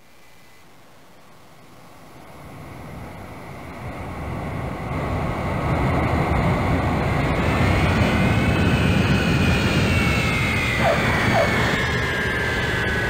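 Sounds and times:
jet aircraft engine noise: 2.4 - 13.0
high whine rising in pitch: 8.3 - 13.0.

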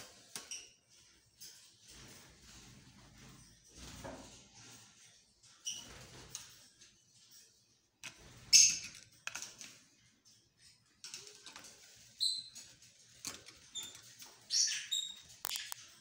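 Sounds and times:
lovebirds chirping: 13.7 - 16.0.

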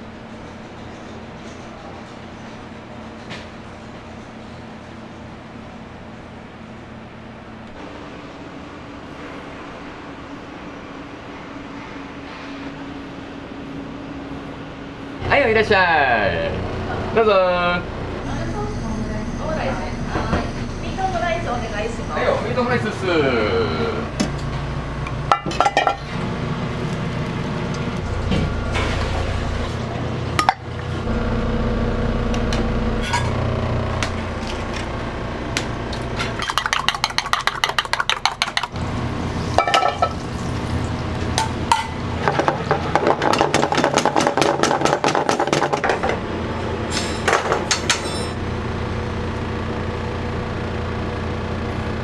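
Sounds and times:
low kitchen hum: 0.0 - 52.0
utensils clinking: 36.2 - 38.8.

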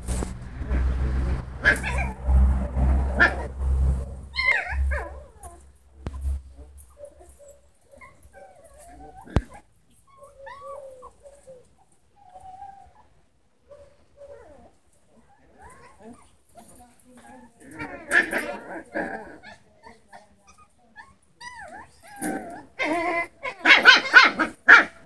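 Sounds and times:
puppies whimpering and yipping: 4.3 - 13.1, 19.5 - 24.2.

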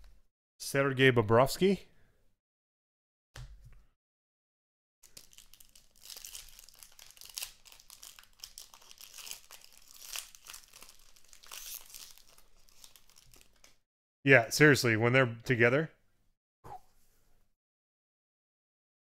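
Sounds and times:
foil wrappers crinkling and tearing: 5.0 - 13.8
cards rustling: 5.1 - 13.7.

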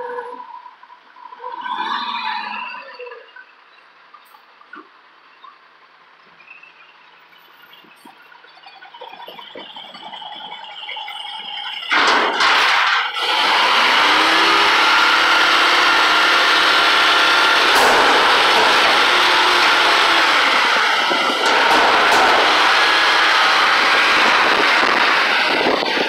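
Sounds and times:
high squeal: 8.8 - 26.0
garbage truck engine revving: 11.0 - 26.0.

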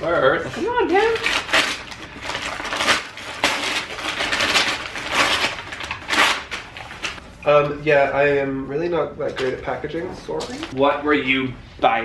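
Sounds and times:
plastic bags crinkling and tearing: 0.0 - 7.2.

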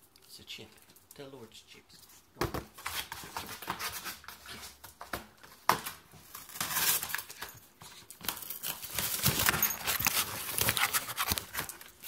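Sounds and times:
puppy claws clicking on floor: 7.0 - 12.0.

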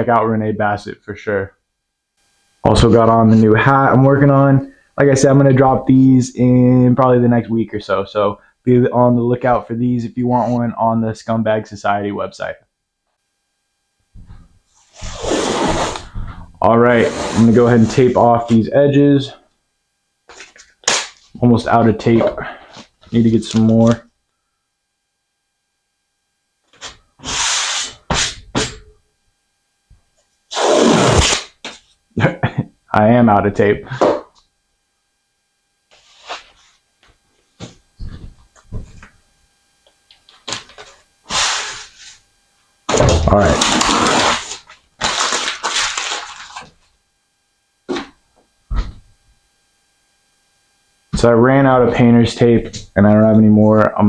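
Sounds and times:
tape ripping off roll: 15.0 - 16.1, 20.4 - 21.3, 30.5 - 31.9, 42.9 - 46.8
rustling handling noise: 43.3 - 46.9.

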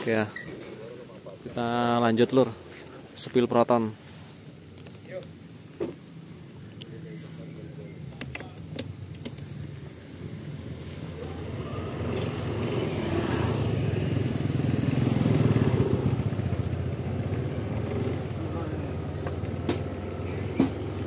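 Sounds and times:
vehicle engine running: 9.0 - 21.0.

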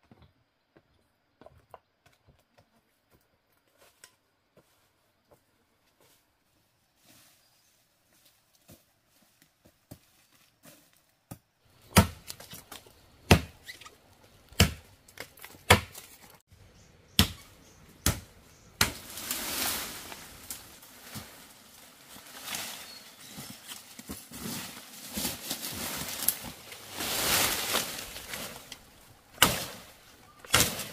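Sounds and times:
sharp chopping strikes: 11.9 - 12.4, 13.3 - 13.6, 14.6 - 16.1, 17.1 - 19.1, 29.4 - 29.9, 30.5 - 30.9
rustling: 18.8 - 30.9.

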